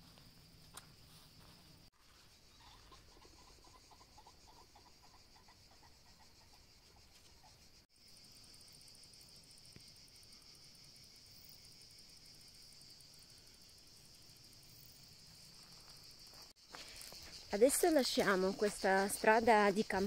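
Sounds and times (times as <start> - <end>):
crickets chirring: 0.0 - 20.0.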